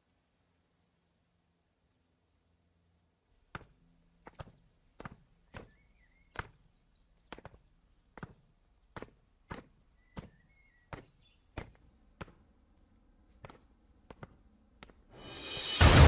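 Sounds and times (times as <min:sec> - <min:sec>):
footsteps on hard path: 0:03.6 - 0:12.6, 0:13.2 - 0:15.1.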